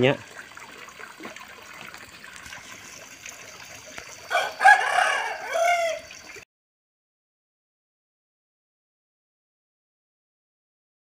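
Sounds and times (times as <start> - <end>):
faint water trickle: 0.0 - 6.4
rooster crowing: 4.3 - 6.2.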